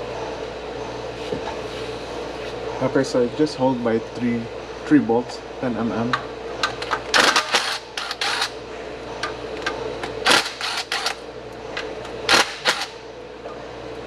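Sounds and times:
low shop hum: 0.0s - 14.0s.

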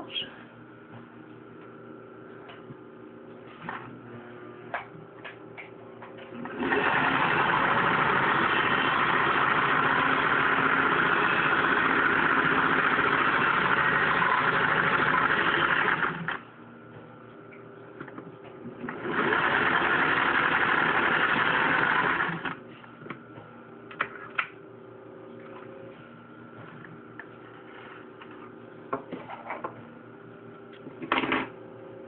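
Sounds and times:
sewing machine stitching: 6.4s - 16.4s, 18.8s - 22.6s.

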